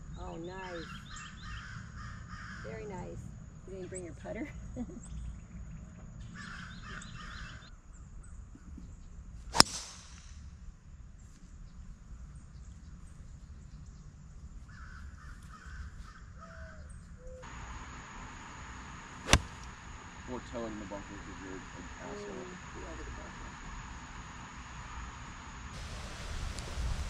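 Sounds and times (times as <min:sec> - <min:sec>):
crows cawing: 0:01.4 - 0:02.7, 0:14.7 - 0:16.8
golf driver striking ball: 0:09.5 - 0:10.3, 0:17.4 - 0:20.2.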